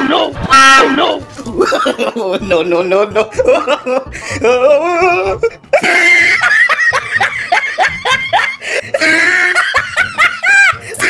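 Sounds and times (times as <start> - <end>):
person laughing: 1.4 - 2.4, 3.1 - 11.0.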